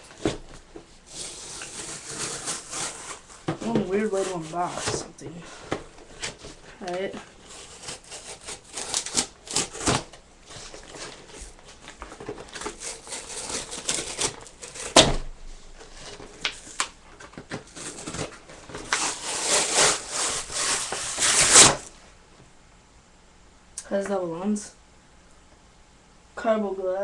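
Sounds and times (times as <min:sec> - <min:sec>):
plastic packaging crinkling: 0:05.8 - 0:15.0, 0:15.7 - 0:21.9.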